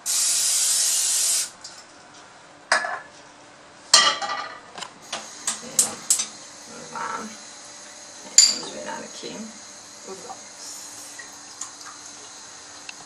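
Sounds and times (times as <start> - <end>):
metal frying pans clattering: 4.0 - 4.7.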